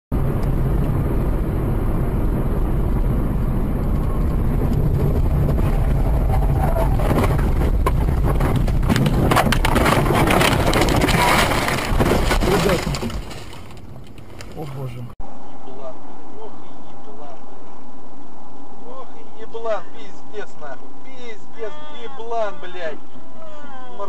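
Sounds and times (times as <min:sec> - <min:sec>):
car road and engine rumble: 0:00.1 - 0:24.0
rattling: 0:04.9 - 0:15.0.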